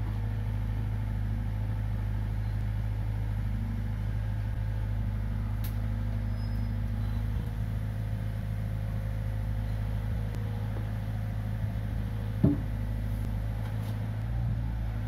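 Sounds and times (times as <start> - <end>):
excavator diesel engine running: 0.0 - 15.0
concrete knocking on ground: 12.4 - 12.7.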